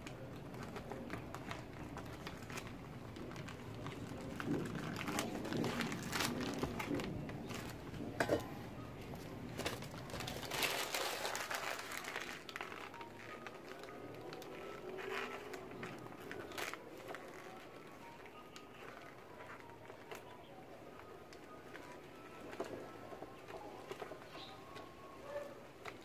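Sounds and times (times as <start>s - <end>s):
crumpled paper crinkling: 0.0s - 26.0s.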